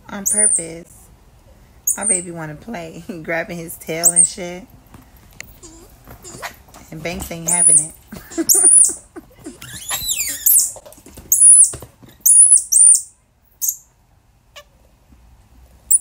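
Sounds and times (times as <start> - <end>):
monkey squealing: 0.2 - 0.8, 1.9 - 2.2, 4.0 - 4.4, 7.5 - 13.8.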